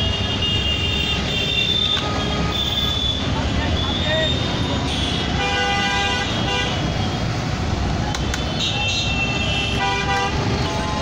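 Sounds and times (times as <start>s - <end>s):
rumble of passing vehicles: 0.0s - 11.0s
car horn honking: 8.5s - 11.0s.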